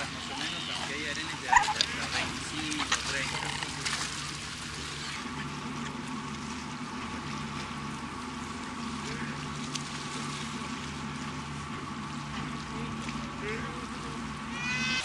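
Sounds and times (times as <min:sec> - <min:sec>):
boat engine humming: 0:00.0 - 0:15.0
water and wind noise: 0:00.0 - 0:15.0.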